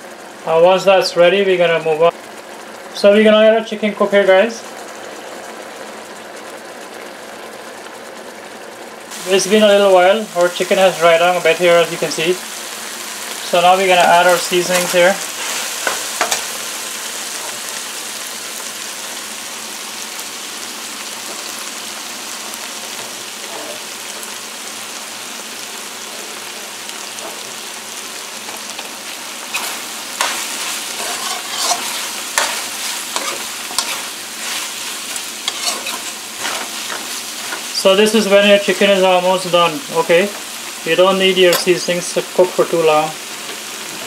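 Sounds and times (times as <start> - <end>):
chicken sizzling in oil: 0.0 - 44.0
metal spoon scraping pan: 29.5 - 37.7.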